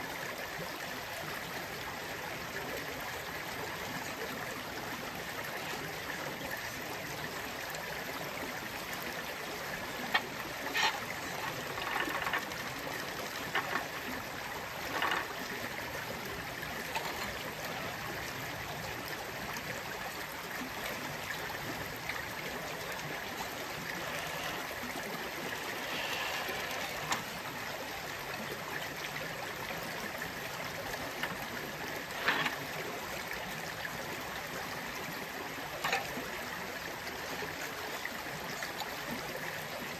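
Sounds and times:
creek water running over rocks: 0.0s - 39.9s
short knocks and scrapes: 32.1s - 32.6s.

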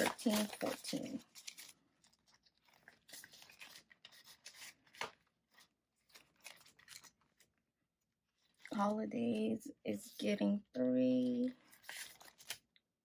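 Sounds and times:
paper and plastic rustling: 0.0s - 7.6s, 11.1s - 12.8s.

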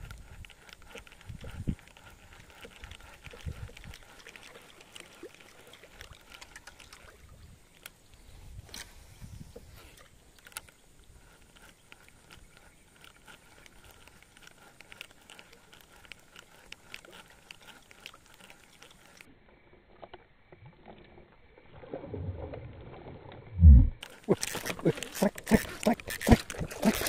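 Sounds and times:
quiet hiss: 6.0s - 12.9s
faint light clicks and ticks: 9.6s - 19.3s
low rumble: 22.0s - 24.0s.

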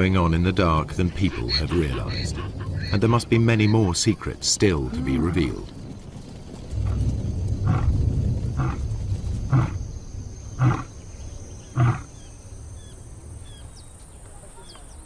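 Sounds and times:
lion roaring and grunting: 4.8s - 5.7s, 6.8s - 8.9s, 9.5s - 9.8s, 10.6s - 10.9s, 11.7s - 12.1s.

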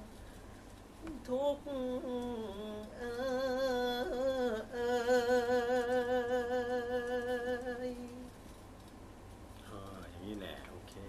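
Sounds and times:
man singing with vibrato: 1.2s - 8.3s.

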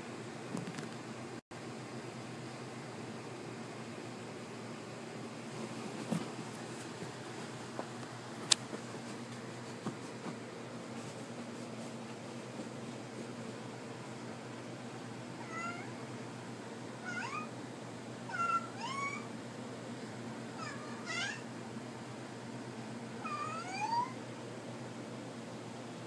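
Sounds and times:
steady low hum: 0.0s - 26.0s
cat meowing: 15.4s - 16.0s, 17.0s - 17.5s, 18.3s - 19.3s, 20.6s - 21.5s, 23.2s - 24.2s.

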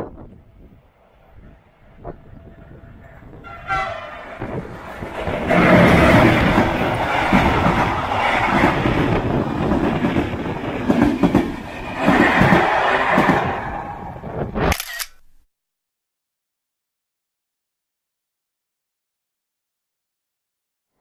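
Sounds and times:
train passing: 0.1s - 14.6s
train horn: 3.2s - 4.6s.

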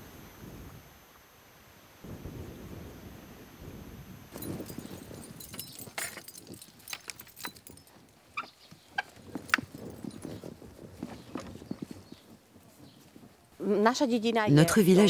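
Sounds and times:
metal gate fastening clinking: 4.4s - 10.2s.

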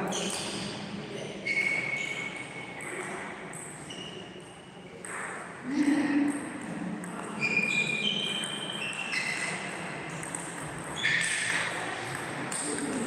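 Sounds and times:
shoes squeaking on floor: 0.0s - 4.7s, 7.2s - 12.2s.

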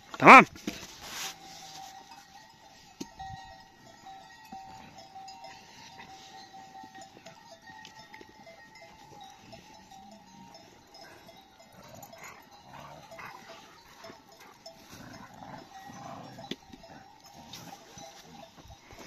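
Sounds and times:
livestock bells clinking: 0.0s - 19.0s
low animal sounds: 9.4s - 18.7s.

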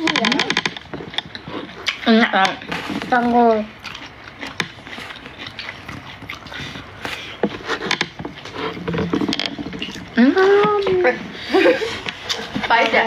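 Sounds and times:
chewing: 0.0s - 13.0s
wet mouth clicks: 3.8s - 8.8s.

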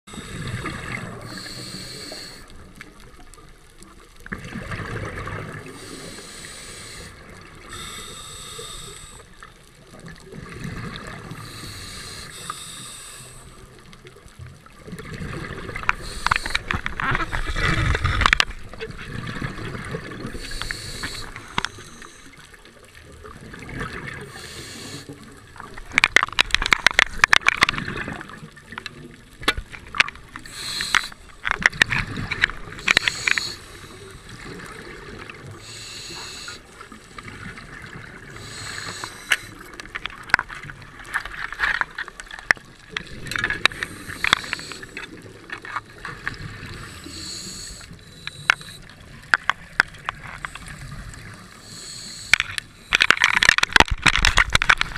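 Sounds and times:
hissy regulator inhalations: 0.1s - 2.5s, 5.7s - 9.3s, 11.3s - 13.6s, 16.0s - 16.7s, 20.3s - 22.4s, 24.3s - 25.1s, 30.4s - 31.3s, 32.8s - 34.6s, 35.6s - 37.3s, 38.3s - 39.7s, 43.7s - 45.1s, 46.6s - 48.9s, 50.5s - 53.2s
crackling bubble clicks: 0.2s - 54.9s.

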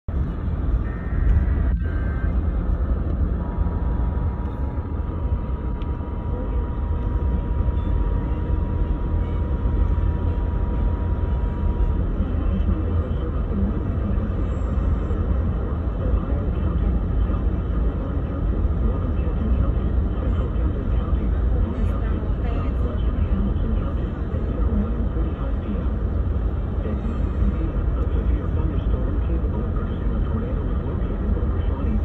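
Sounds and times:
radio static rumble and hiss: 0.1s - 32.0s
faint steady tone: 0.7s - 19.1s.

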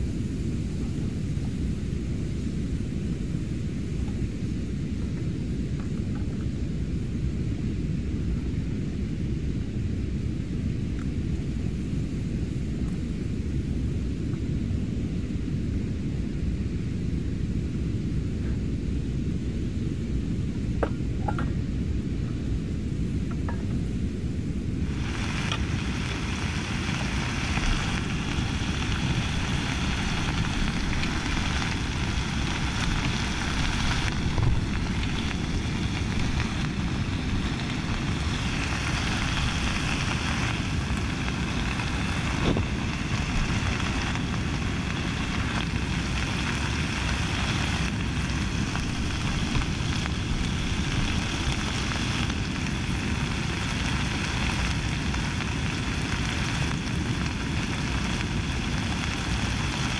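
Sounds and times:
meat sizzling in a pot: 0.0s - 59.9s
gas stove rushing: 23.1s - 52.0s.

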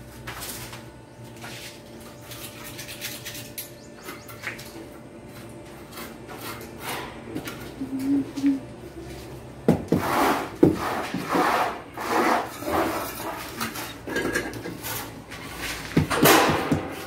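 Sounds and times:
scraping of building material: 5.3s - 7.4s, 9.9s - 17.0s.

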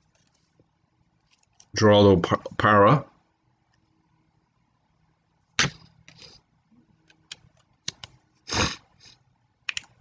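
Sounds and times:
small clicks: 9.7s - 10.0s.

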